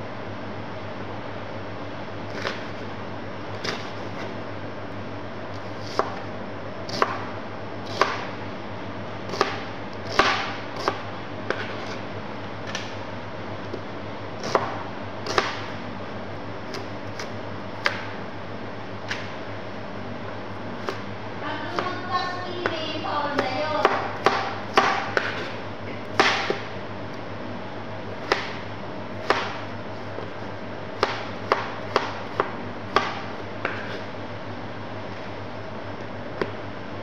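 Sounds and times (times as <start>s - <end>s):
steady low hum: 0.0s - 37.0s
knife chopping on plastic board: 2.3s - 2.7s, 5.8s - 6.2s, 6.9s - 7.3s, 7.9s - 8.3s, 9.3s - 12.0s, 14.4s - 15.7s, 16.7s - 18.1s, 20.8s - 21.0s, 22.6s - 26.7s, 28.2s - 28.6s, 29.2s - 29.6s, 31.0s - 34.0s.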